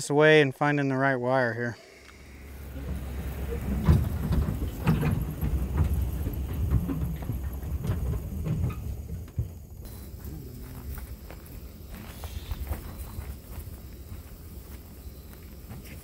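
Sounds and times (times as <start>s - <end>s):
truck engine rumble: 1.6s - 16.0s
wagon rattling and clanking: 2.6s - 9.8s.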